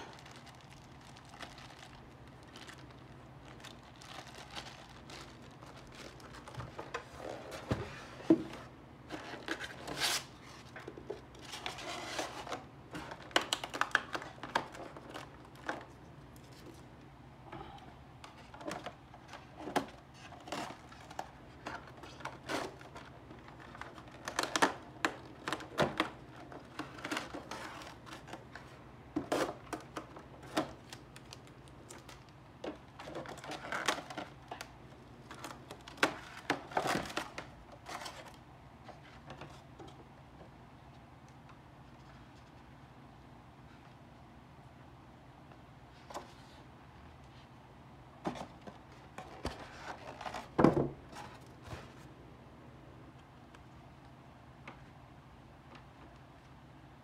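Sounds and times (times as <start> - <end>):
plastic wrap crinkling: 0.0 - 7.6, 9.1 - 16.9, 18.5 - 38.4.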